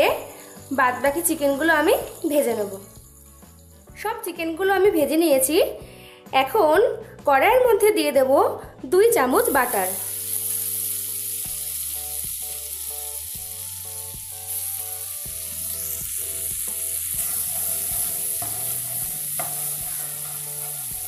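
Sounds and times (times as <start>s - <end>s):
butter sizzling: 0.0s - 4.0s, 9.4s - 21.0s
spatula stirring butter: 17.1s - 21.0s.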